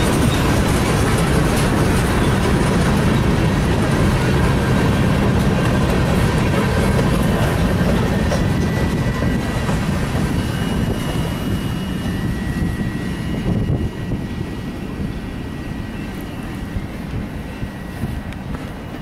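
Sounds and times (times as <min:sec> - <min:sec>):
freight train wheels rumbling: 0:00.0 - 0:19.0.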